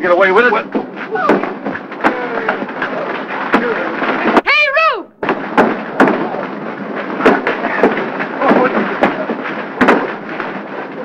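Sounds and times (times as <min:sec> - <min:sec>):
punch impacts: 0:05.2 - 0:10.5.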